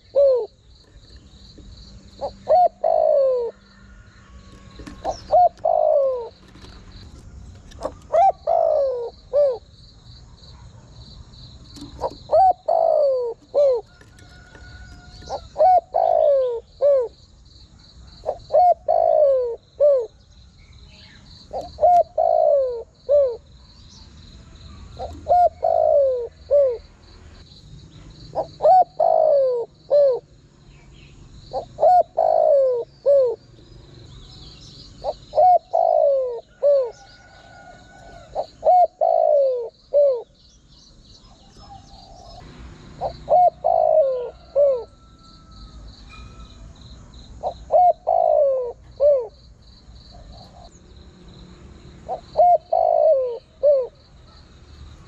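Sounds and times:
dove cooing: 0.0s - 1.2s, 2.1s - 9.7s, 11.7s - 17.2s, 18.2s - 20.2s, 21.5s - 23.4s, 24.7s - 26.9s, 28.3s - 30.3s, 31.5s - 33.4s, 35.0s - 40.3s, 43.0s - 45.2s, 47.4s - 49.4s, 52.1s - 54.0s
faint high chirping: 43.0s - 50.9s.

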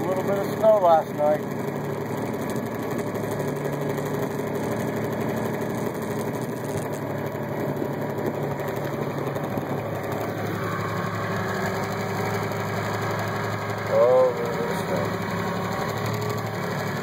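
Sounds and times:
tractor diesel engine running: 0.0s - 17.0s.

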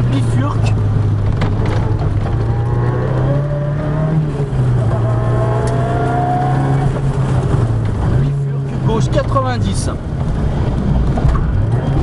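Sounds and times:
rally car engine accelerating: 0.0s - 9.3s
road noise on gravel: 0.0s - 12.0s.

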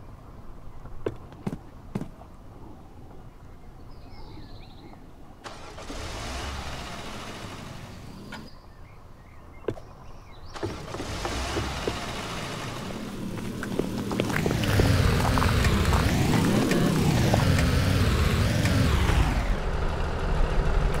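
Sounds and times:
car engine and road noise: 0.0s - 21.0s.

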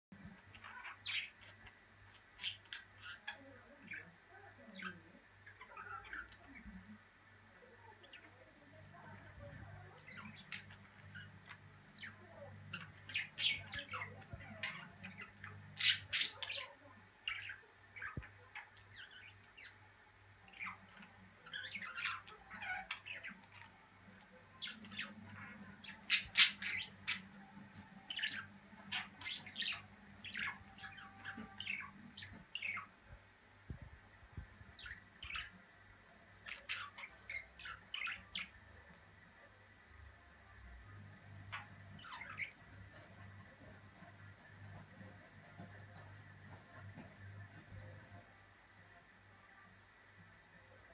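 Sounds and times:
budgerigars chirping: 0.3s - 4.1s, 9.9s - 19.8s, 20.4s - 33.0s, 34.6s - 35.6s, 36.4s - 38.6s, 41.4s - 44.1s.

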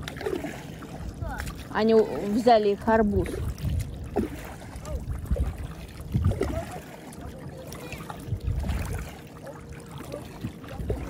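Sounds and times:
water lapping against paddleboard: 0.0s - 11.0s
wind rumbling on microphone: 0.0s - 11.0s.

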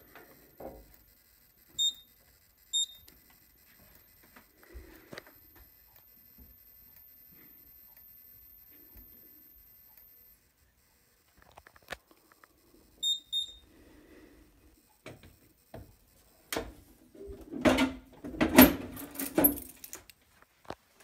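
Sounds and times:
short electronic beeps: 1.1s - 4.2s, 13.0s - 13.7s
keys jangling in lock: 19.0s - 20.0s.

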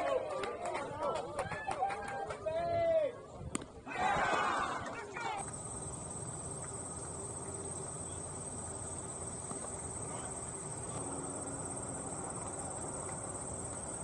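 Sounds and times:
low outdoor background noise: 0.0s - 14.0s
high-pitched insect chorus: 5.4s - 14.0s.

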